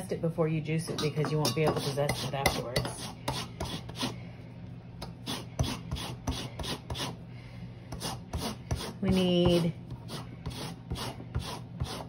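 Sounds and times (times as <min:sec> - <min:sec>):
peel rasping on grater: 0:01.7 - 0:04.2, 0:05.1 - 0:07.2, 0:07.9 - 0:12.0.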